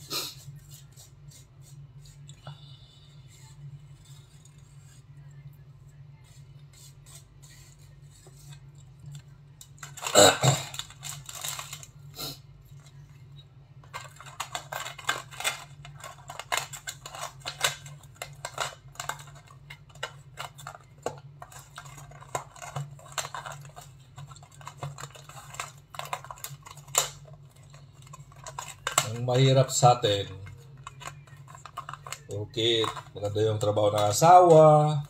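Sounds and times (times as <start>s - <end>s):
foil tray crinkling: 9.6s - 12.0s, 13.8s - 35.0s.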